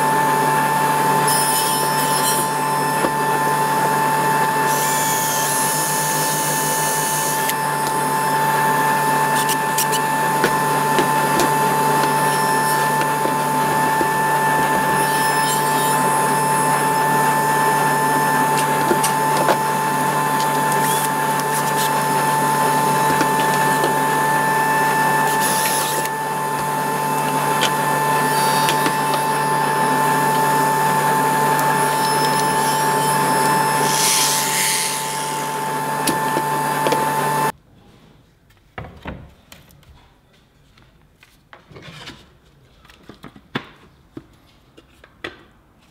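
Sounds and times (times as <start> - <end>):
machine hum with whine: 0.0 - 37.6
drill driving screw into wood: 9.3 - 37.1.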